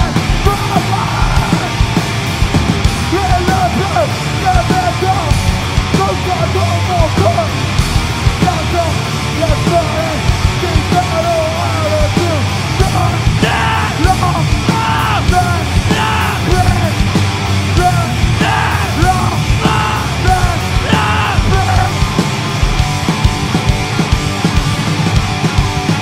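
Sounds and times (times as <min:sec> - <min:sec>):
screamed vocals: 0:00.0 - 0:01.8, 0:12.8 - 0:16.9, 0:17.8 - 0:22.0
distorted electric guitars: 0:00.0 - 0:26.0
drums: 0:00.0 - 0:26.0.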